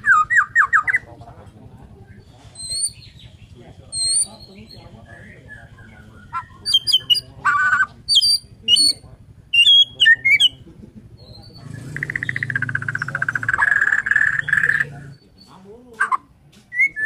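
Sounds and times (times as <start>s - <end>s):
bird singing chirps and whistles: 0.0s - 1.1s, 2.6s - 10.6s, 11.2s - 17.0s
bird buzzing trill: 11.6s - 14.9s.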